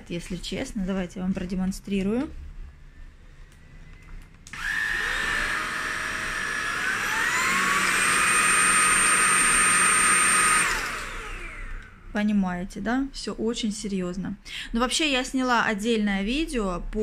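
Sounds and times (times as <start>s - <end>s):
vacuum cleaner motor whining: 4.5s - 12.0s.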